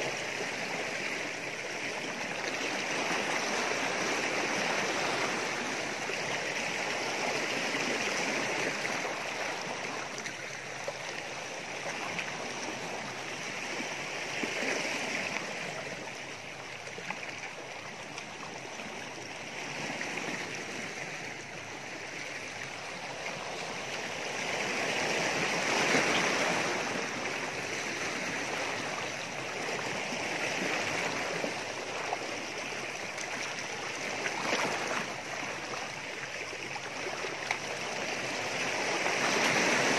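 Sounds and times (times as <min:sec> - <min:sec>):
waves washing against rocks: 0:18.0 - 0:39.9.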